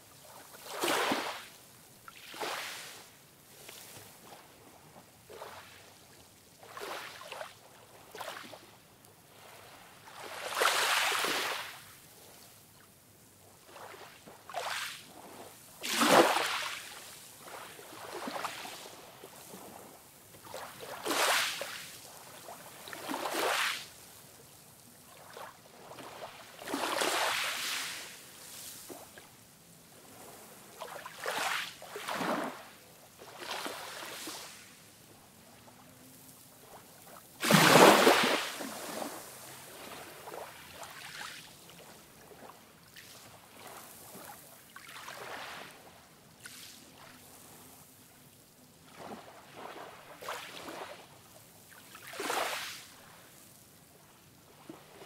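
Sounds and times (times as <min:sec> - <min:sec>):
ocean waves breaking on beach: 0:00.2 - 0:12.1, 0:13.4 - 0:55.0.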